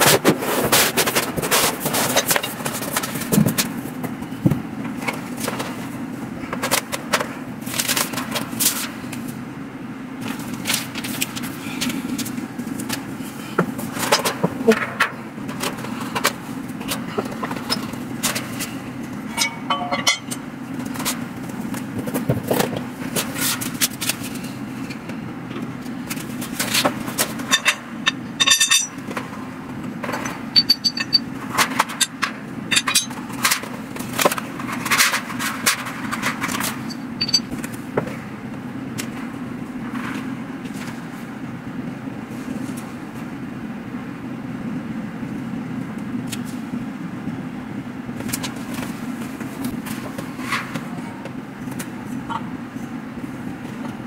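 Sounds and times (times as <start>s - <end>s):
cardboard rustling and scraping: 0.0s - 3.8s
steady low hum: 0.0s - 54.0s
metal parts clattering: 19.3s - 20.4s, 26.6s - 29.3s, 30.0s - 33.6s, 34.7s - 37.6s.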